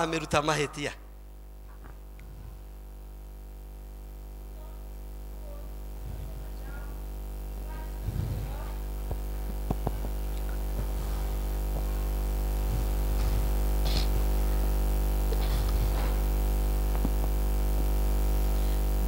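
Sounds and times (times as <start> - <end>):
sound system hum and buzz: 0.0 - 19.0.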